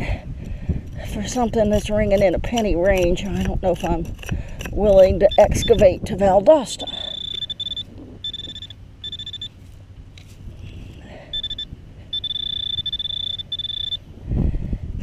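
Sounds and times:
pinpointer buzzing alert: 6.8s - 9.5s, 11.4s - 14.0s.

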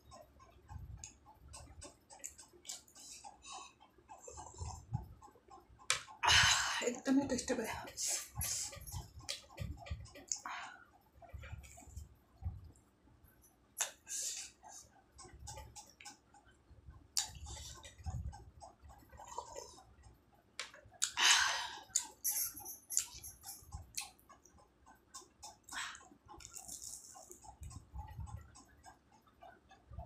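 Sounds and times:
fast even ticking: 21.8s - 30.0s
chewing with mouth smacks: 25.4s - 27.5s.

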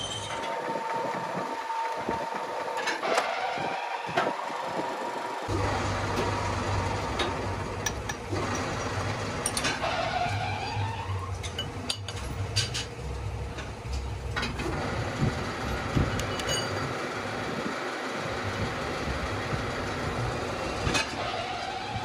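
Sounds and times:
workshop machinery humming: 0.0s - 22.0s
rising squeal: 9.6s - 11.4s
metal clinks and knocks: 16.1s - 16.8s.

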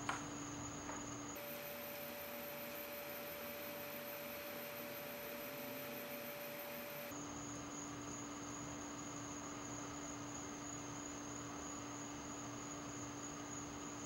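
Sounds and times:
electronic sine tones: 1.4s - 7.1s.

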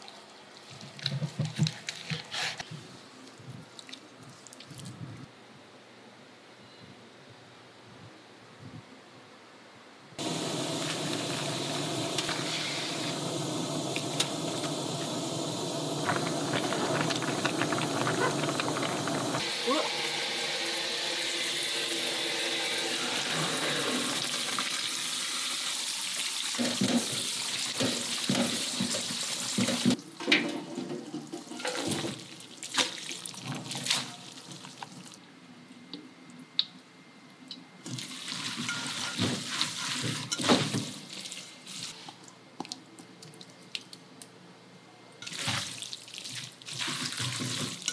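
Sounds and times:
kitchen tap running: 10.2s - 30.0s
noodles boiling in water: 10.2s - 30.0s.

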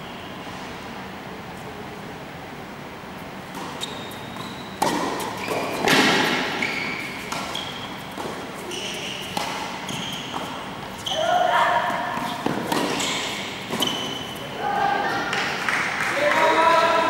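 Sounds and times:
rackets hitting tennis ball: 3.5s - 14.6s
shoe squeaks on court: 3.6s - 11.5s, 12.2s - 14.5s.

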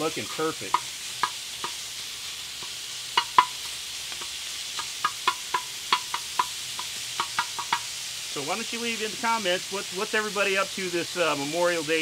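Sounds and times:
bacon sizzling: 0.0s - 12.0s.

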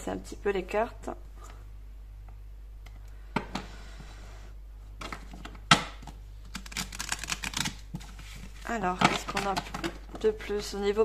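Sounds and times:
cards shuffling clicks: 5.0s - 8.6s.

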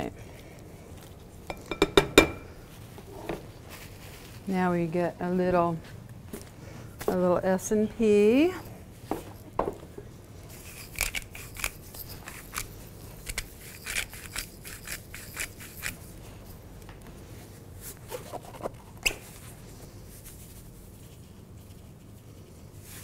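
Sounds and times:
pepper grinder crunching: 10.5s - 16.0s.

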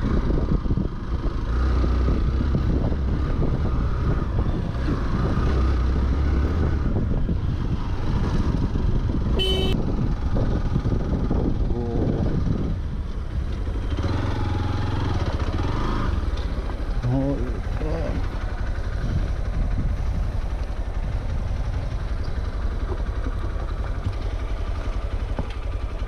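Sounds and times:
motorcycle low rumble: 0.0s - 26.0s
vehicle horn beep: 9.4s - 9.8s.

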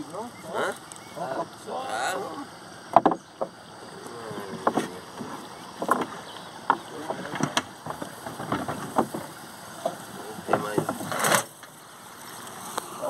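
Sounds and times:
wind and water hiss: 0.0s - 13.0s
paddle knocks and splashes: 2.9s - 3.6s, 4.3s - 11.4s.

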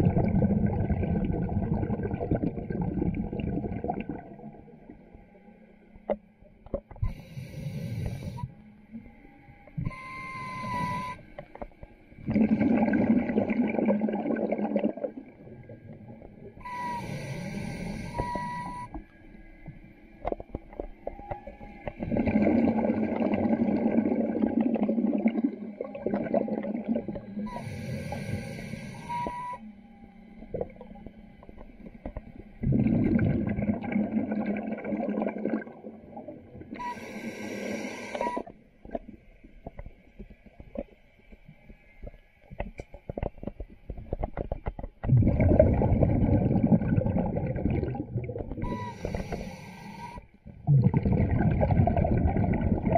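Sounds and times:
exhaled bubbles rushing: 0.0s - 5.0s, 12.2s - 16.4s, 21.9s - 27.6s, 32.6s - 36.9s, 45.0s - 49.3s, 50.5s - 52.9s
regulator hissing inhales: 7.1s - 8.5s, 16.8s - 18.7s, 27.5s - 29.4s, 36.9s - 38.5s, 48.7s - 50.3s
faint clicks and crackles: 10.8s - 12.4s, 18.1s - 22.3s, 38.1s - 45.4s.

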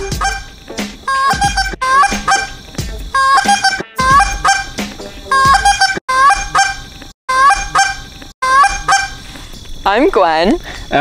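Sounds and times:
waterfowl calling: 0.0s - 0.5s, 1.1s - 9.4s.

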